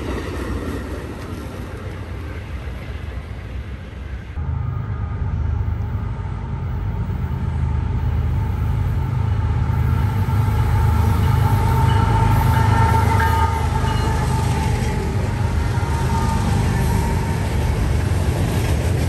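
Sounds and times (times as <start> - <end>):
locomotive engine drone: 1.1 - 19.0
high whine: 4.4 - 18.2.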